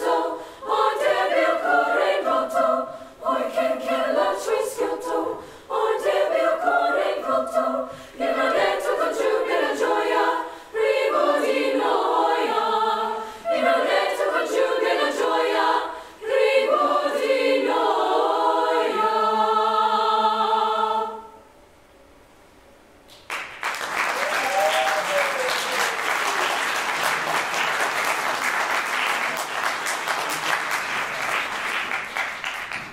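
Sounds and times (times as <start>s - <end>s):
girls' choir holding a chord: 0.0s - 21.6s
audience applause: 23.1s - 32.9s.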